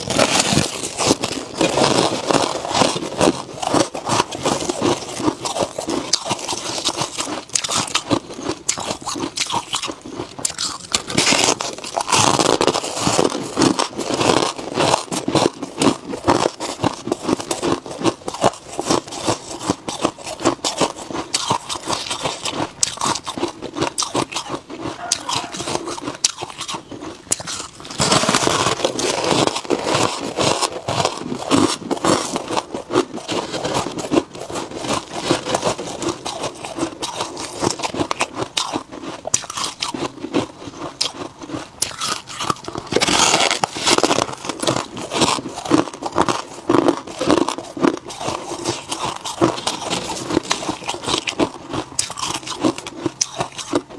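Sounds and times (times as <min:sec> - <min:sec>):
chewing frost crunching: 0:00.0 - 0:53.9.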